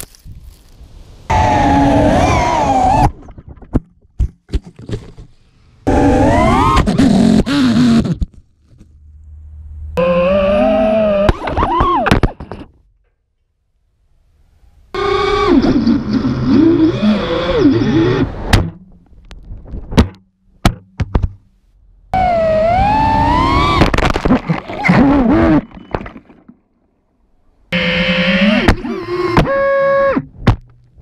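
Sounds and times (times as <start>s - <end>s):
drone motors whining: 1.3s - 3.3s, 5.8s - 8.2s, 10.0s - 12.2s, 15.0s - 18.6s, 22.2s - 26.2s, 27.7s - 30.3s.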